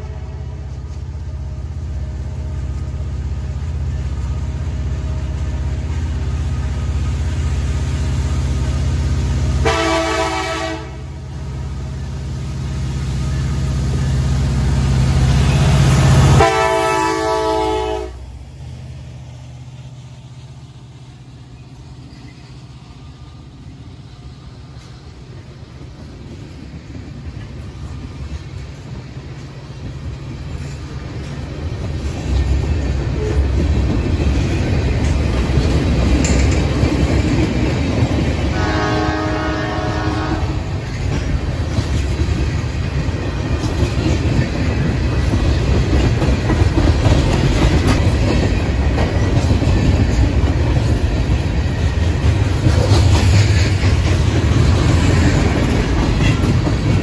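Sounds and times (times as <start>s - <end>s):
diesel locomotive engine rumble: 0.0s - 57.0s
train wheels clicking on rails: 0.0s - 57.0s
train air horn: 9.6s - 11.2s, 16.3s - 18.3s, 38.5s - 40.7s.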